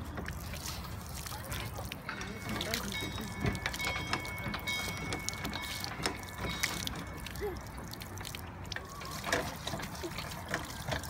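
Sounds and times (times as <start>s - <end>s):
water splashing into trough: 0.0s - 11.0s
pump handle knocks: 2.1s - 7.2s.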